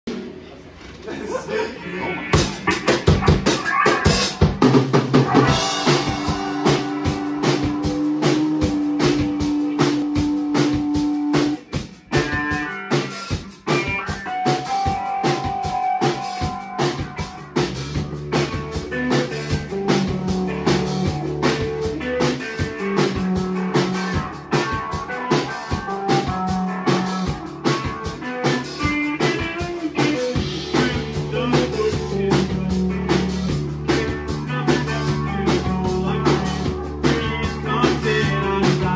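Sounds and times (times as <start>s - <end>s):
rock band playing instrumental: 2.1s - 38.9s.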